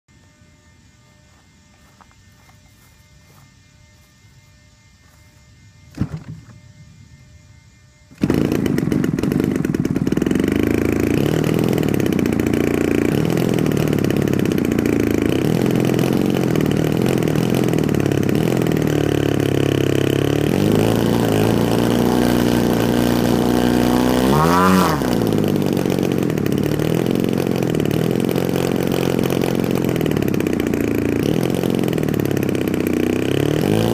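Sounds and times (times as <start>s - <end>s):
two-stroke engine running rough: 8.1s - 33.9s.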